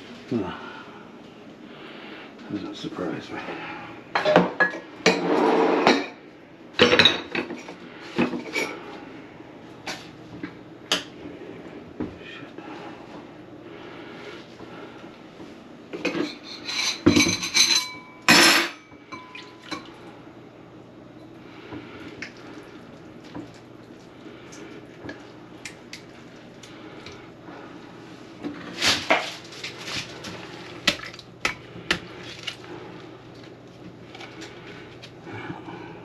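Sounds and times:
dishes and metal clattering: 4.2s - 6.2s, 6.8s - 8.8s, 16.0s - 19.9s.

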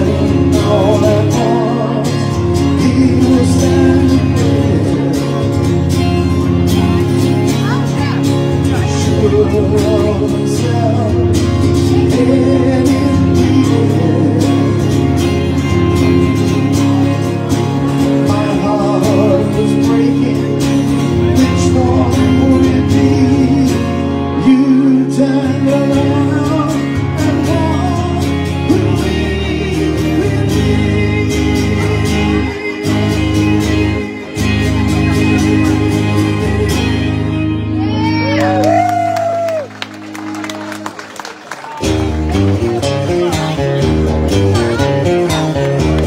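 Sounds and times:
man singing: 0.0s - 7.3s, 8.2s - 38.6s
amplified electric guitar: 0.0s - 46.0s.

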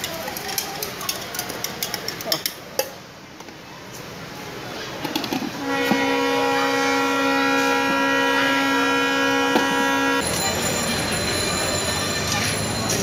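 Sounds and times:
horn blast: 5.6s - 10.2s.

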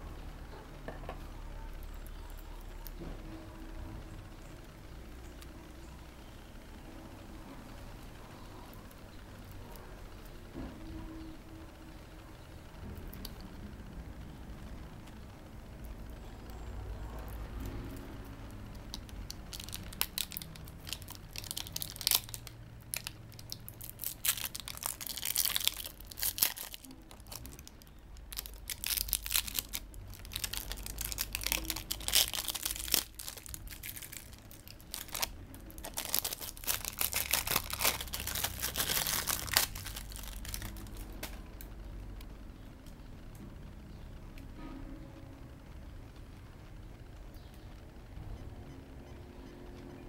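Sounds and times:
plastic wrap crinkling and tearing: 18.7s - 41.3s.

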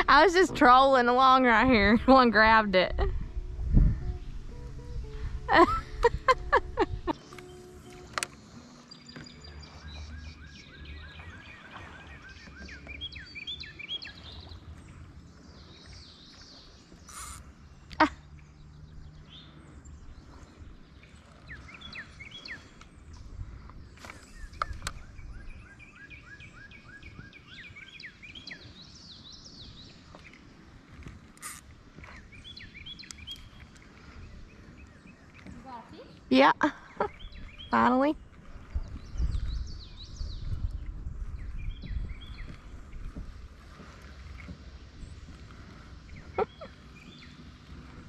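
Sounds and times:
low outdoor rumble: 0.0s - 12.0s
songbird chirping: 0.0s - 48.0s.

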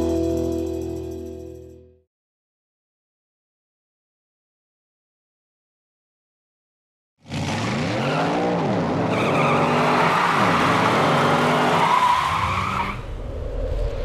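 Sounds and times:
race car engine revving: 7.2s - 12.0s.

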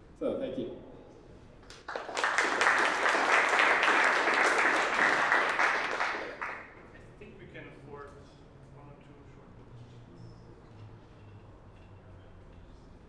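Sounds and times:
audience applauding: 1.6s - 6.8s.

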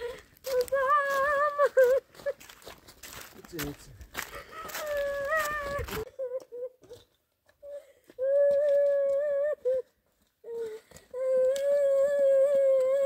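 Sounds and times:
high voice humming a melody: 0.0s - 2.0s, 4.7s - 13.0s.

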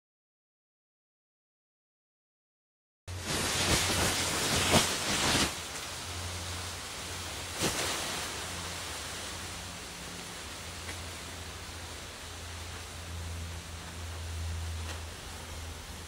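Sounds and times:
gunpowder fizzing hiss: 3.1s - 13.0s.

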